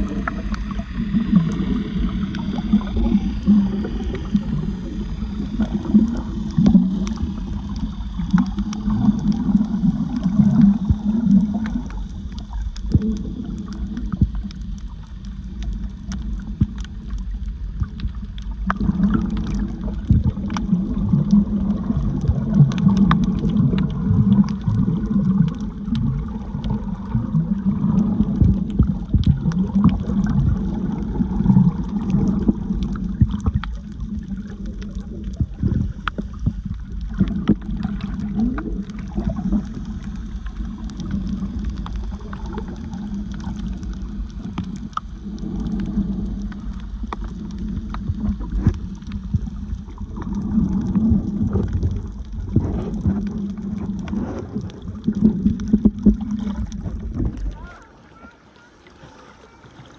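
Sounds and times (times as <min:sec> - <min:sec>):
water gurgling and sloshing: 0:00.0 - 0:59.9
faint clicks: 0:10.6 - 0:26.8, 0:31.8 - 0:57.9.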